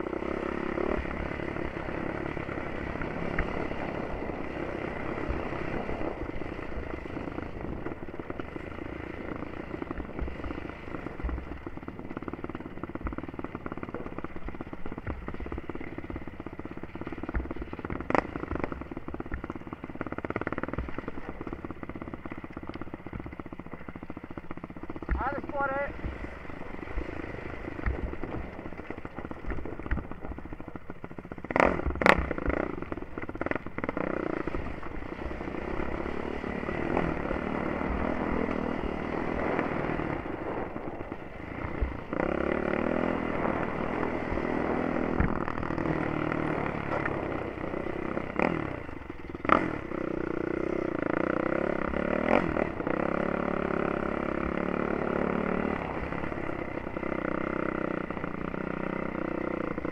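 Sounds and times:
quad engine revving: 0:00.0 - 0:59.9
clatter and knocks over rocks: 0:27.0 - 0:33.0.

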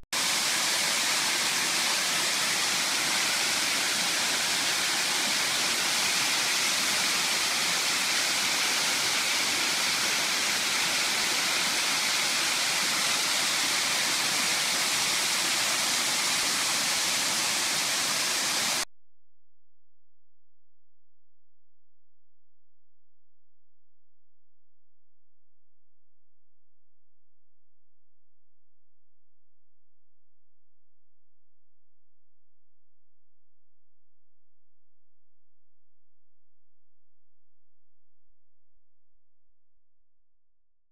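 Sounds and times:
waterfall rushing: 0:00.2 - 0:18.8.

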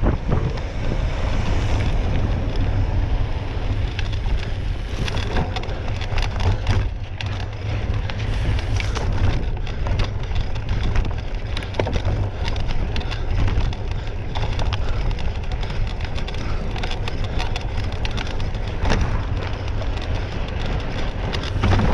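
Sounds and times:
rattling and clicking: 0:00.0 - 0:21.9
wind buffeting microphone: 0:00.0 - 0:21.9.

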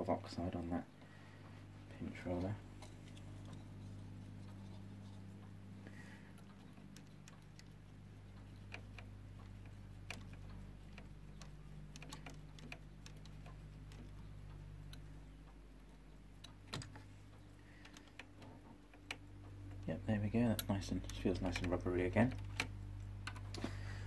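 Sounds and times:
steady low hum: 0:00.0 - 0:24.0
fingers clicking and tapping metal: 0:05.4 - 0:23.6.

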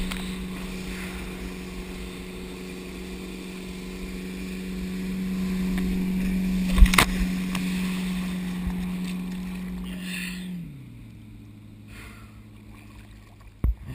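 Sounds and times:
water splash: 0:00.0 - 0:10.9, 0:12.4 - 0:13.9
boat engine drone: 0:00.0 - 0:13.9
water rushing: 0:00.0 - 0:13.9
board thumping on water: 0:06.6 - 0:07.7.

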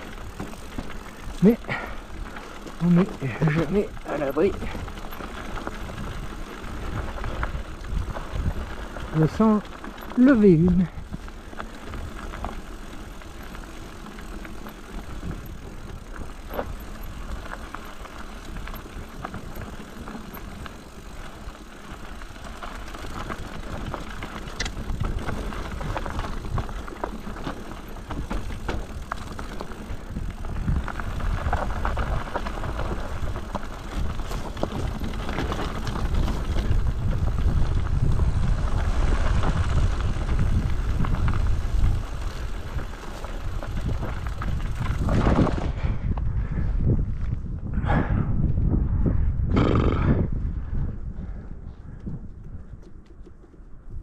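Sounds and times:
tyres rolling over stones: 0:00.0 - 0:45.8
bike rattling: 0:00.0 - 0:48.1, 0:50.0 - 0:54.0.

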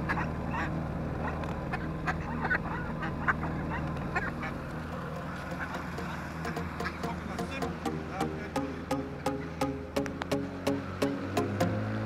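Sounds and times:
ducks quacking: 0:00.0 - 0:07.6
outboard motor droning: 0:00.0 - 0:12.0.

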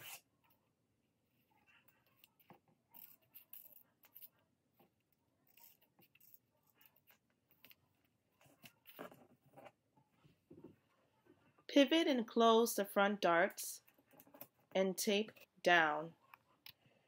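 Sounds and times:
scissors cutting paper: 0:02.1 - 0:04.4, 0:05.4 - 0:07.8.

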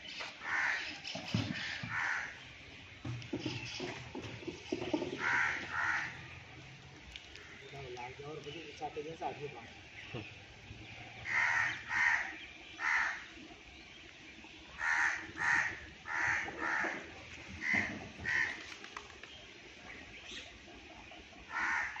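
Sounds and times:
bird harsh calls: 0:00.0 - 0:02.6, 0:03.3 - 0:06.5, 0:09.7 - 0:13.6, 0:14.6 - 0:18.9, 0:20.0 - 0:22.0.

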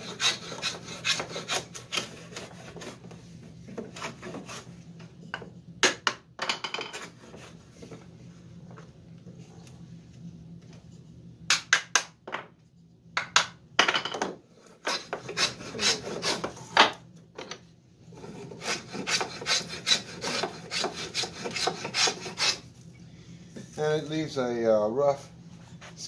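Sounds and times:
hand plane rasping across wood: 0:00.0 - 0:03.0, 0:14.9 - 0:16.6, 0:18.2 - 0:22.6.

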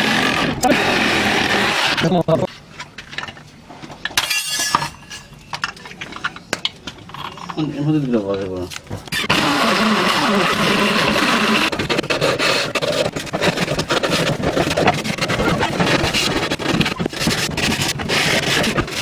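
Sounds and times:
scraping on wooden board: 0:09.3 - 0:19.0.

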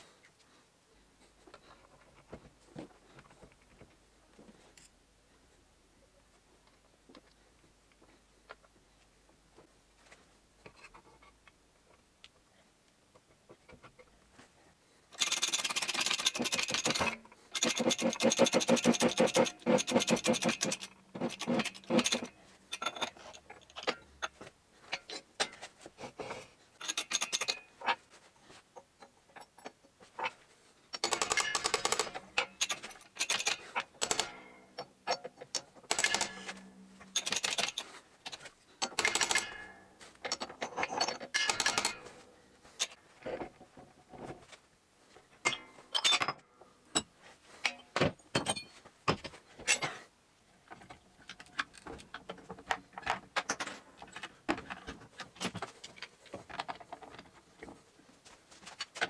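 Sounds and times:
tools and parts clinking: 0:15.1 - 0:25.8, 0:26.8 - 0:28.0, 0:28.7 - 0:44.3, 0:45.4 - 0:50.0, 0:50.6 - 0:57.8.

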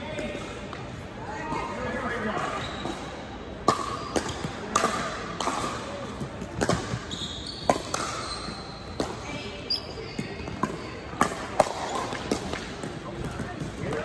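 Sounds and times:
paddles hitting plastic ball: 0:03.6 - 0:07.0, 0:10.2 - 0:14.0
ball bouncing: 0:03.6 - 0:14.0
sneakers squeaking on hardwood: 0:06.8 - 0:10.6.

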